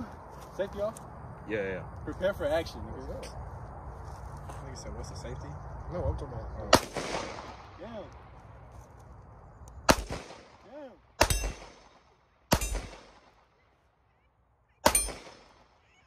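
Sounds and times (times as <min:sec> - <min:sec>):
pistol shots with echo: 0:06.7 - 0:08.0, 0:09.8 - 0:13.5, 0:14.8 - 0:15.8.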